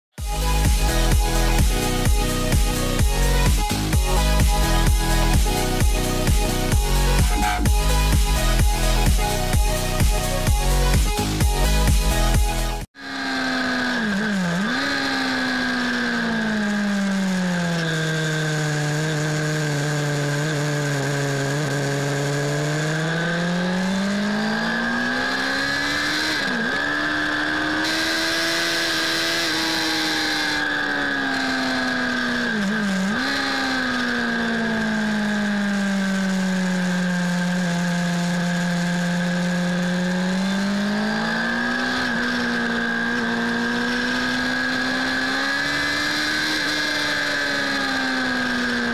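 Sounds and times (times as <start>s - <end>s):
motorcycle engine revving: 0.0s - 48.9s.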